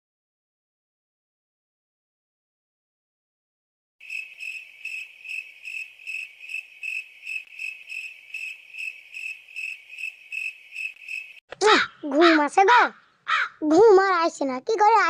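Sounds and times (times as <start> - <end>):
cricket chirping: 4.0 - 11.4.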